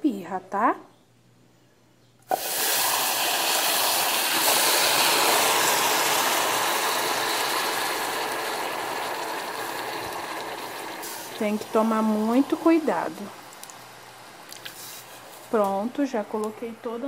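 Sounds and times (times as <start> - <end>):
water hissing on hot caramel: 2.3 - 15.6.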